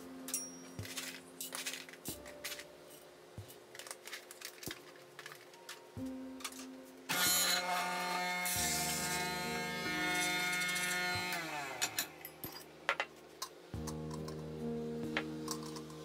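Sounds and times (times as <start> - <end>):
coffee grinder grinding beans: 7.1 - 12.3.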